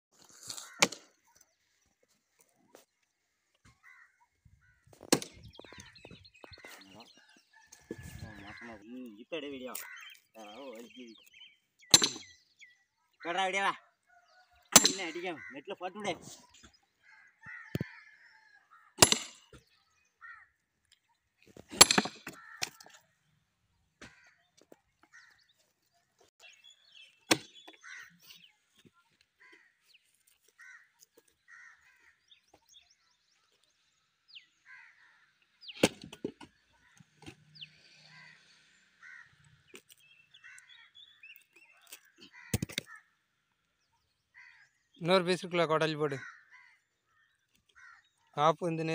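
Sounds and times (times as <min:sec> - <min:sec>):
crows cawing faintly: 0:00.3 - 0:01.6, 0:03.5 - 0:11.4, 0:13.0 - 0:23.3, 0:23.9 - 0:26.3, 0:26.9 - 0:33.6, 0:34.3 - 0:35.6, 0:36.6 - 0:43.5, 0:44.2 - 0:44.9, 0:45.9 - 0:48.4
sledgehammer striking steel wedge: 0:11.9 - 0:12.3, 0:14.8 - 0:15.1, 0:19.0 - 0:19.5, 0:21.7 - 0:22.3.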